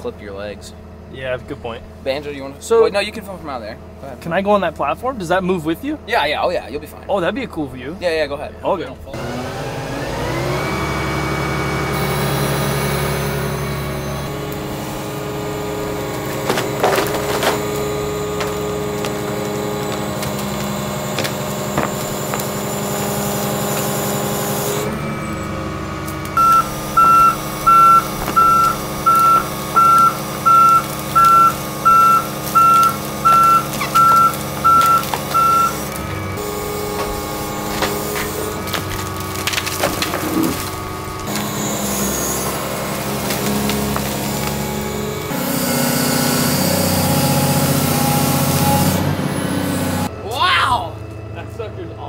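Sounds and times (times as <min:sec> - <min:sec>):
excavator engine and hydraulics: 0:00.0 - 0:52.0
wood snapping: 0:15.9 - 0:24.6, 0:26.0 - 0:45.3
travel alarm beeping: 0:26.4 - 0:35.8.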